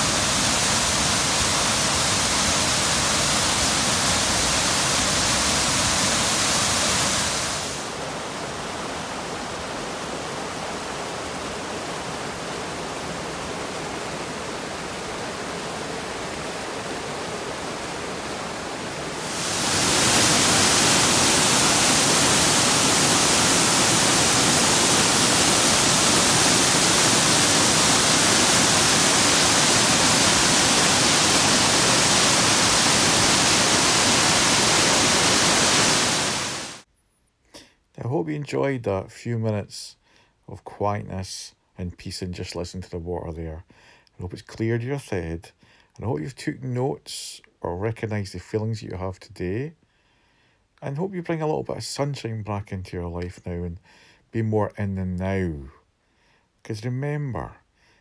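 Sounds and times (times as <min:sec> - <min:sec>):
river running over rapids: 0:00.0 - 0:36.8
waterfall pouring over rocks: 0:00.0 - 0:36.8.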